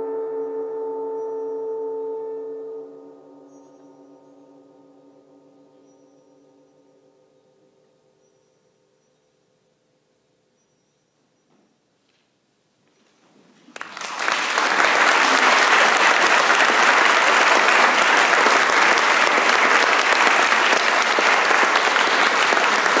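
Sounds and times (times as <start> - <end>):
audience applause: 13.7 - 23.0.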